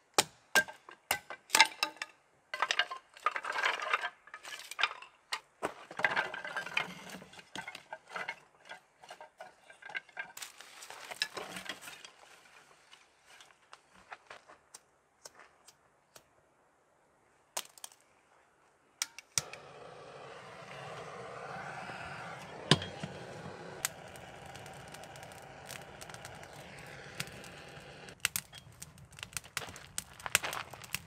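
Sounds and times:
gas torch hissing: 19.4s - 28.2s
kindling crackling: 19.4s - 31.0s.

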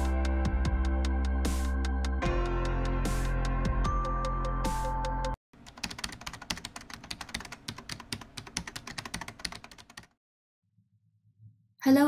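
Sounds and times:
computer keyboard typing: 5.6s - 10.2s.

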